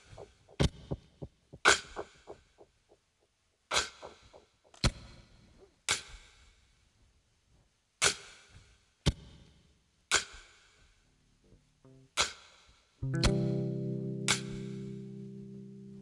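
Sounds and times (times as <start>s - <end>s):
sharp percussive hits: 0.0s - 2.6s
soft plucked guitar notes: 13.0s - 16.0s.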